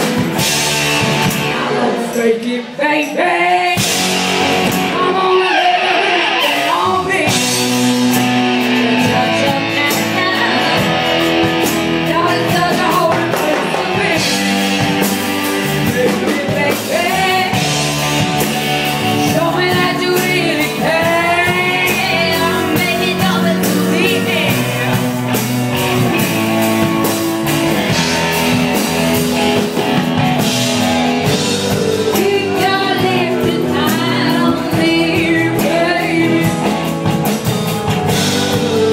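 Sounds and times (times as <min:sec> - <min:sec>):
drums: 0:00.0 - 0:38.9
electric guitars: 0:00.0 - 0:38.9
person singing: 0:01.4 - 0:11.2, 0:12.0 - 0:15.0, 0:15.6 - 0:17.9, 0:19.0 - 0:25.2, 0:31.2 - 0:37.3, 0:37.9 - 0:38.9.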